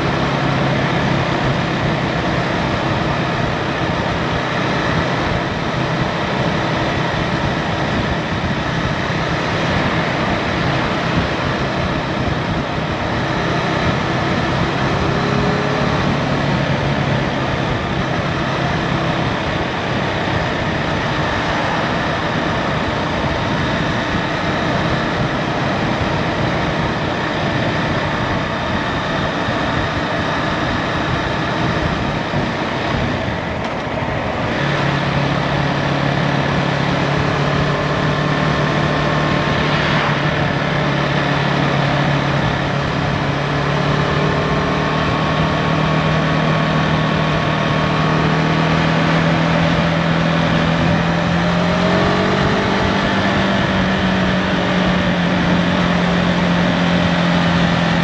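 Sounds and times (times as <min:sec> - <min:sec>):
motorcycle engine cruising: 0:00.0 - 0:58.0
wind noise: 0:00.0 - 0:58.0.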